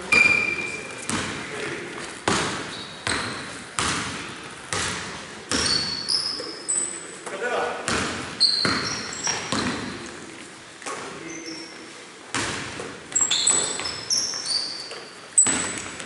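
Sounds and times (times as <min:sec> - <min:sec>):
shoes squeaking on wooden floor: 0:00.0 - 0:03.7, 0:05.5 - 0:07.4, 0:08.3 - 0:12.0, 0:12.8 - 0:16.0
basketball bouncing: 0:00.1 - 0:01.5, 0:02.2 - 0:06.1, 0:07.8 - 0:10.1, 0:12.3 - 0:16.0.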